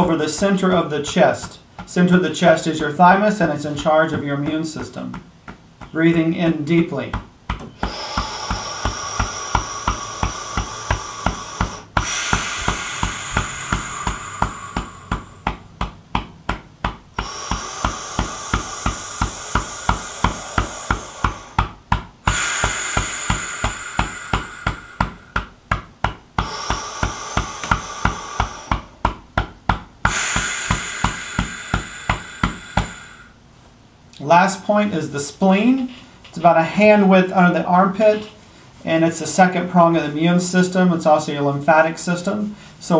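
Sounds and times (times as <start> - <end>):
fingertips tapping on chest: 0.0 - 33.3
slow deep breaths: 0.0 - 33.7, 38.2 - 38.9, 42.2 - 42.9.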